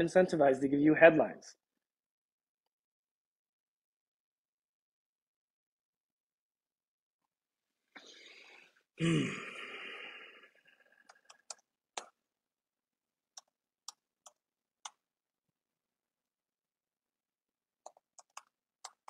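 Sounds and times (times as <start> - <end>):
man sighing: 8.0 - 10.9.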